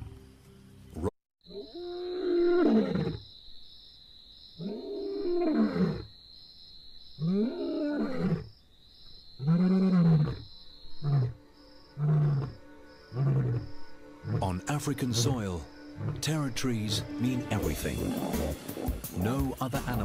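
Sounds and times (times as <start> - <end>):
lion roaring: 12.0 - 14.6, 15.9 - 16.3, 17.7 - 19.0
lion grunting: 12.0 - 16.5, 17.6 - 19.2.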